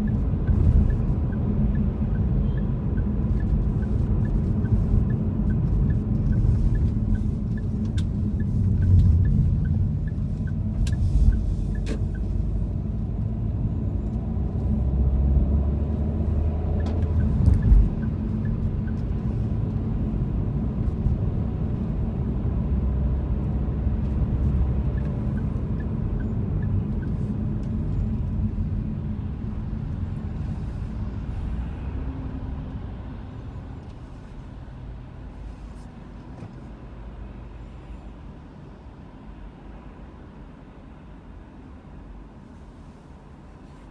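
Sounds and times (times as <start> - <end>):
light regular ticking: 0.0 - 12.6
car road and engine rumble: 0.0 - 43.9.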